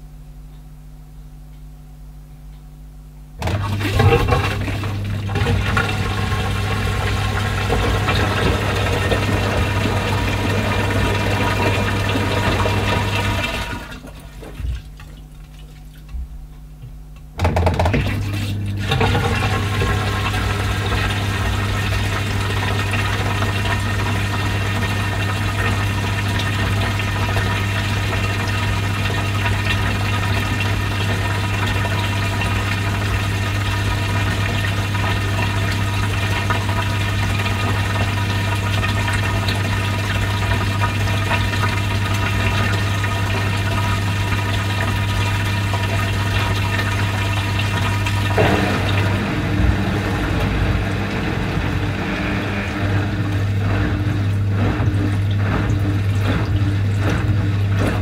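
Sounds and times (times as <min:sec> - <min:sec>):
washing machine drain pump humming: 0:00.0 - 0:58.0
water rushing and gurgling: 0:48.2 - 0:58.0.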